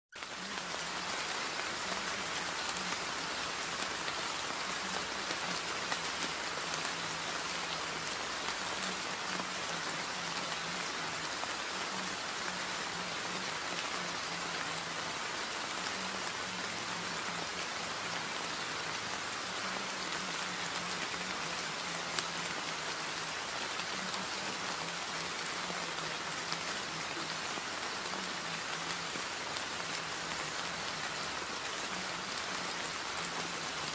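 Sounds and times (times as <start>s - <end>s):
rain falling on a surface: 0.1s - 33.9s.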